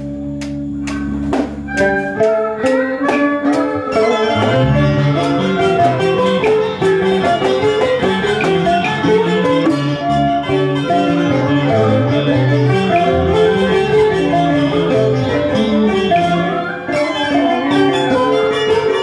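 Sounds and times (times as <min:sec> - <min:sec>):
plucked strings playing runs: 0:00.4 - 0:19.0
bowed string: 0:04.0 - 0:06.3.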